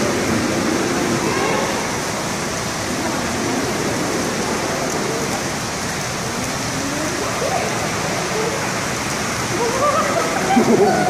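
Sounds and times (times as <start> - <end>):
faint voices: 0.0 - 11.0
rushing falling water: 0.0 - 11.0.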